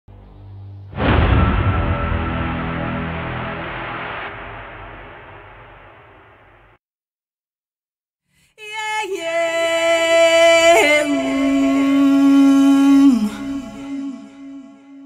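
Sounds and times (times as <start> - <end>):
woman singing long notes: 8.6 - 15.0.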